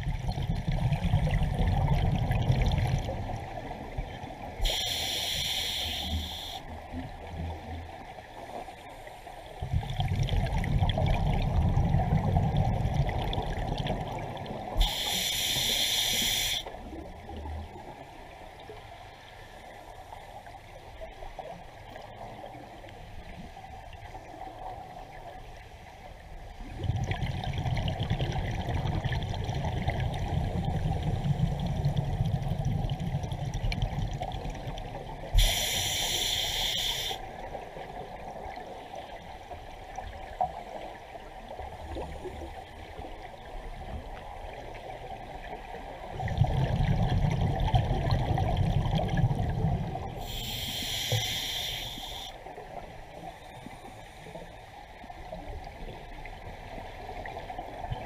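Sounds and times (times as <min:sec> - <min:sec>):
exhaled bubbles gurgling: 0:00.0 - 0:08.0, 0:09.6 - 0:18.0, 0:26.6 - 0:39.2, 0:39.9 - 0:52.8
regulator inhale hiss: 0:04.6 - 0:06.7, 0:14.8 - 0:16.8, 0:35.3 - 0:37.3, 0:50.2 - 0:52.4.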